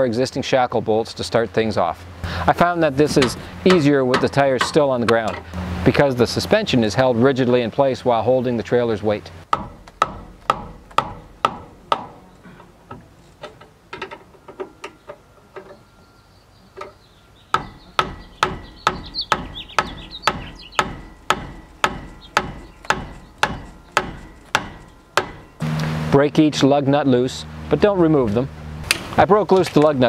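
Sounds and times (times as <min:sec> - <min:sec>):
hammer striking metal wrench: 0:03.0 - 0:05.5, 0:09.5 - 0:12.2, 0:17.6 - 0:25.8.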